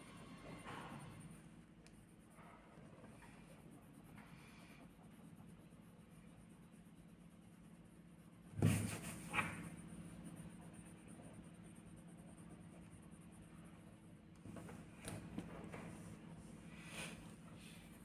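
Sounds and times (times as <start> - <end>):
pencil scratching on paper: 0.0 - 18.0.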